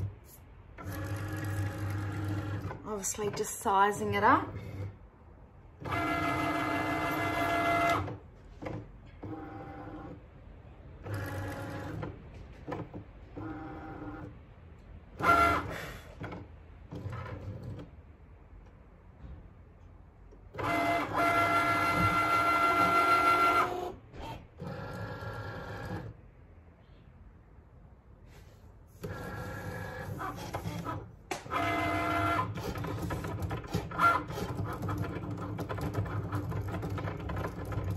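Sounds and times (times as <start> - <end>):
cutting machine motors whining: 5.8 - 10.2, 20.5 - 26.1, 29.0 - 37.9.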